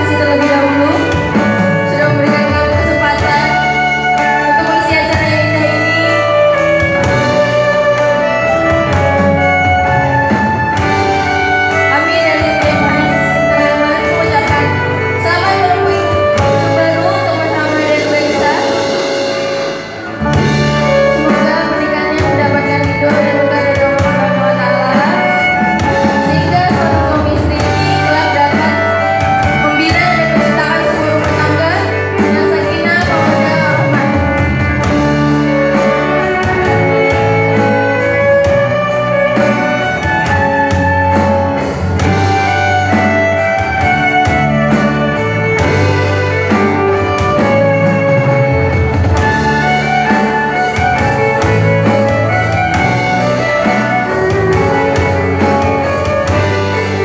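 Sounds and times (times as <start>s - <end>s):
woman singing: 0.0s - 7.2s, 11.8s - 19.0s, 20.9s - 34.5s
acoustic guitar: 0.0s - 57.0s
drums: 0.0s - 57.0s
electric bass: 0.0s - 57.0s
violin: 0.0s - 57.0s.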